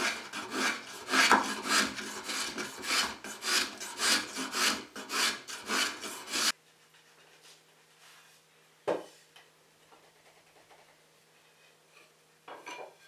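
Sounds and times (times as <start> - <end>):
hand tool rasping wood: 0.0 - 6.6.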